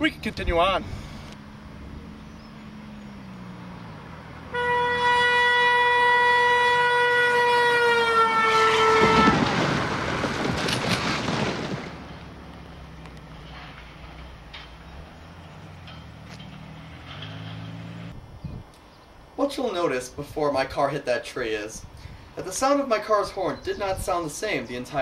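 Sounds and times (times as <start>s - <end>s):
car crashing into tree: 9.0s - 12.6s.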